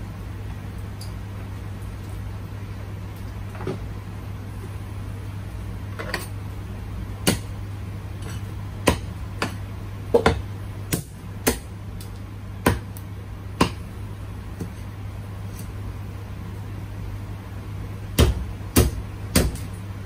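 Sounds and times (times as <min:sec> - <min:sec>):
cleaver chopping on block: 0:07.2 - 0:07.5, 0:08.2 - 0:09.6, 0:10.2 - 0:11.7, 0:12.6 - 0:12.9, 0:13.6 - 0:13.8, 0:18.2 - 0:19.7.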